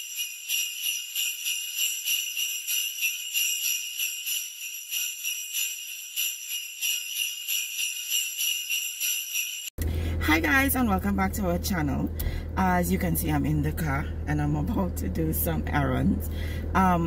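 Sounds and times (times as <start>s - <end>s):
sleigh bells jingling: 0.0s - 9.8s.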